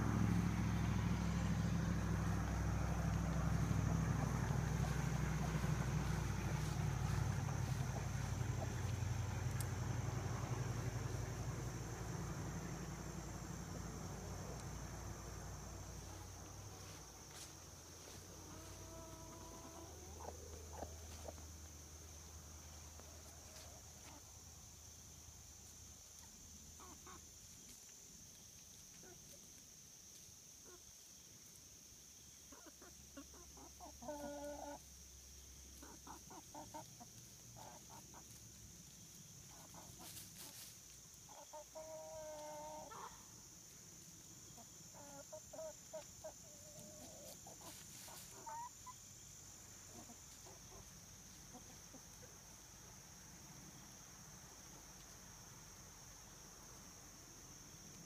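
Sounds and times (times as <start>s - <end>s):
chickens clucking: 1.4s - 12.8s, 15.9s - 21.8s, 22.7s - 24.3s, 26.1s - 27.4s, 32.5s - 34.8s, 35.8s - 53.1s.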